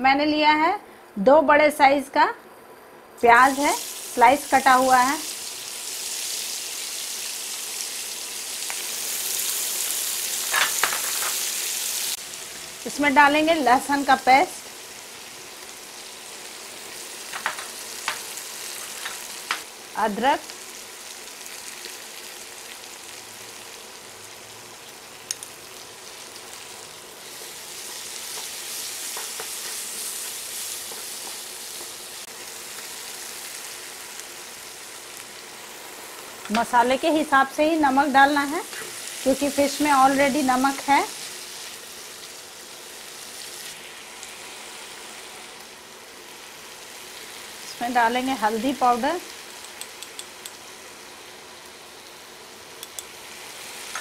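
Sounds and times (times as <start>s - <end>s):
onions sizzling in oil: 3.1s - 54.0s.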